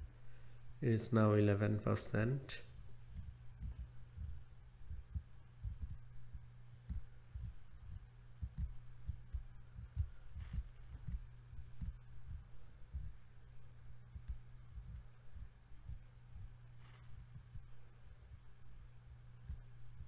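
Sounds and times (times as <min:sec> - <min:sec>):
steady low hum: 0:00.0 - 0:20.0
soft low thumps: 0:02.5 - 0:20.0.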